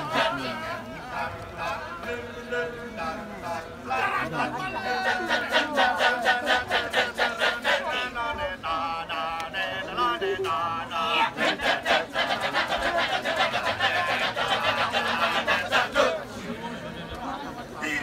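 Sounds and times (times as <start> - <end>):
men chanting rhythmically: 0.0 - 16.4.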